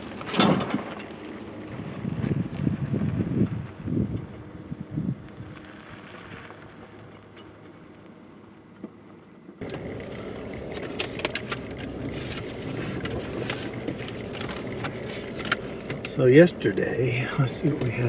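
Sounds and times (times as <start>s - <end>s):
clicks and rattles in cab: 0.0s - 1.2s, 9.6s - 16.6s
engine and road rumble in cab: 0.0s - 18.0s
wind: 0.0s - 18.0s
pickup truck driving away: 9.6s - 18.0s.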